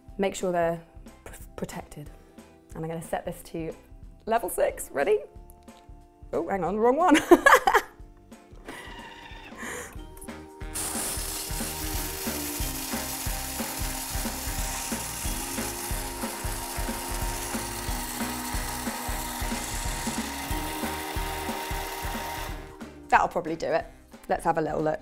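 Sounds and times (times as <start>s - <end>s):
food processor chopping chocolate: 10.7s - 22.8s.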